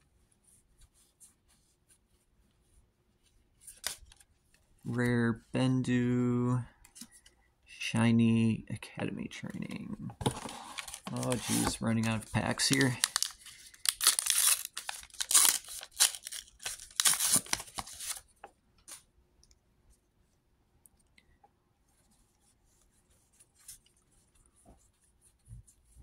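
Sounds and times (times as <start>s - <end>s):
faint handling sounds: 0.0s - 5.5s, 6.6s - 7.6s, 9.3s - 26.0s
wrapper tearing and crinkling: 12.5s - 18.2s.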